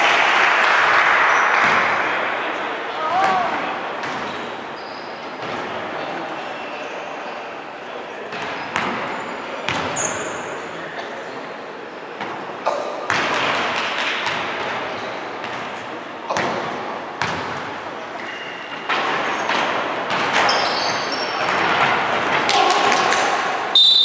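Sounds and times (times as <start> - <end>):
crowd shouting and cheering: 0.0 - 4.0, 22.2 - 24.0
sneakers squeaking on hardwood: 4.0 - 5.7, 8.3 - 10.6, 18.1 - 22.3.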